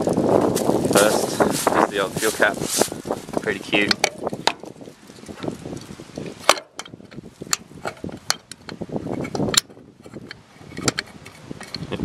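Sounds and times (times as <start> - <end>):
metal fuel flap clicking shut: 6.4 - 8.7.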